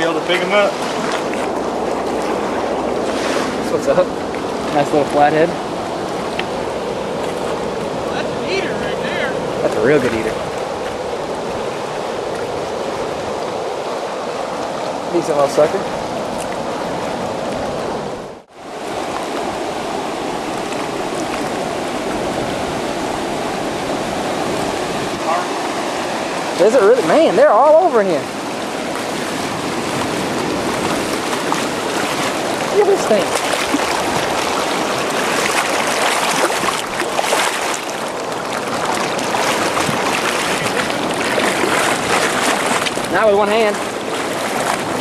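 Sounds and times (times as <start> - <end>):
water rushing over spillway: 0.0 - 45.0
fish thrashing and splashing: 28.6 - 45.0.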